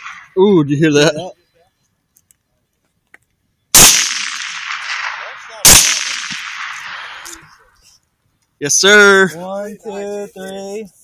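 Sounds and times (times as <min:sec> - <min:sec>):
loud gunshots with echo: 0:00.0 - 0:00.4, 0:03.8 - 0:07.4.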